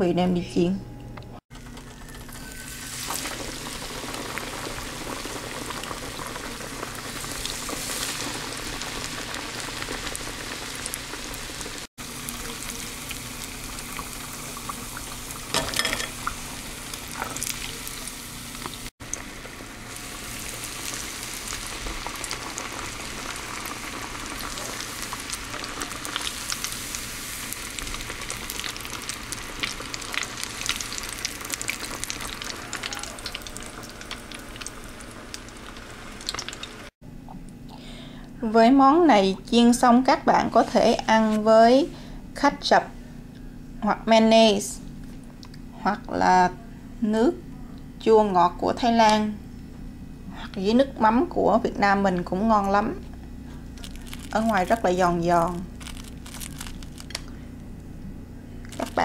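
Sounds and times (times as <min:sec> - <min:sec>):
patties deep-frying in oil: 0:01.5 - 0:36.9, 0:53.6 - 0:57.4, 0:58.7 - 0:59.0.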